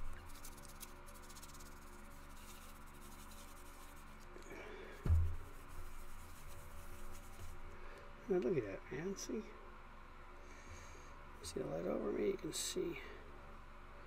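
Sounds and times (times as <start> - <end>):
paper towel rubbing plastic: 0.0 - 4.3, 5.1 - 7.6
dull low thump: 5.0 - 5.6.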